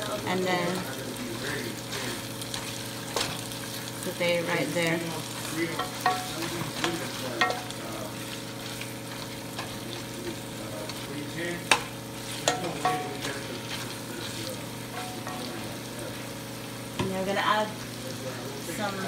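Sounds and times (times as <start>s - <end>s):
meat sizzling in a pot: 0.0s - 19.0s
wooden spoon knocking on pot: 5.7s - 7.7s, 11.7s - 13.2s.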